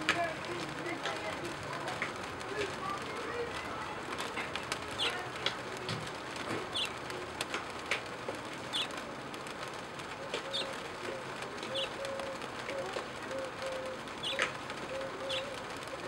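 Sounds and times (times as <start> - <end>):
background noise: 0.0 - 16.0
small clicks: 0.0 - 16.0
bird chirping: 6.7 - 6.9, 8.7 - 9.0, 11.7 - 12.0, 14.2 - 14.5, 15.3 - 15.5.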